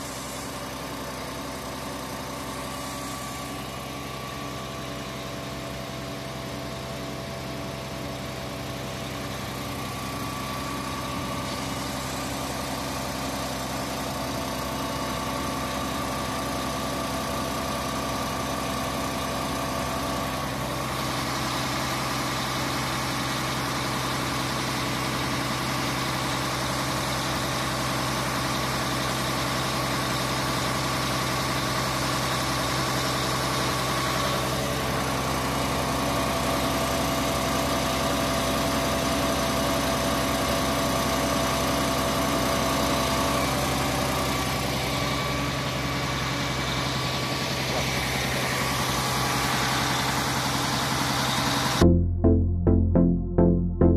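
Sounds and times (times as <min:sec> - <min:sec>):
truck diesel engine running: 0:00.0 - 0:27.0.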